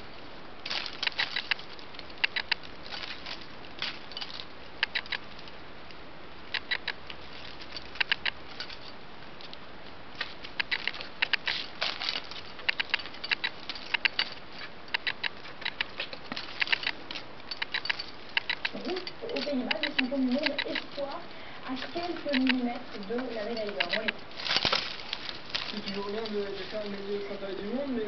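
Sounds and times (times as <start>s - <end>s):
plastic toy clicking on tiles: 6.5s - 7.0s, 8.0s - 8.4s, 12.6s - 14.3s, 14.9s - 15.9s, 17.6s - 20.9s, 22.2s - 22.8s.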